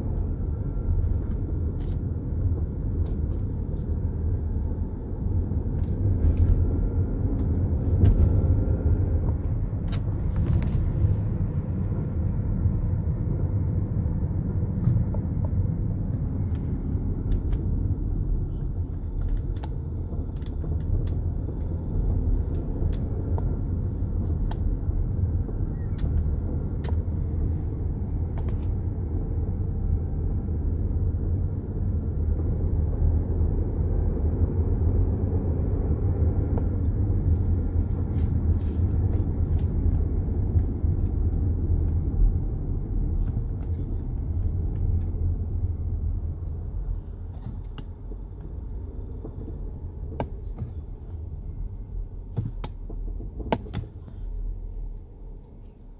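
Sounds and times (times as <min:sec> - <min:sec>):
low road rumble: 0:00.0 - 0:55.9
suspension clicks and knocks: 0:05.4 - 0:12.2, 0:14.4 - 0:28.8, 0:46.4 - 0:51.0, 0:52.2 - 0:54.4.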